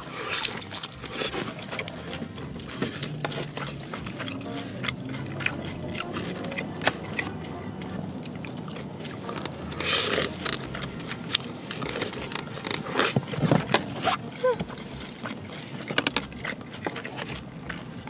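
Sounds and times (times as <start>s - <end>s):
loud slurp: 0.0s - 13.3s
wet chewing: 0.0s - 18.0s.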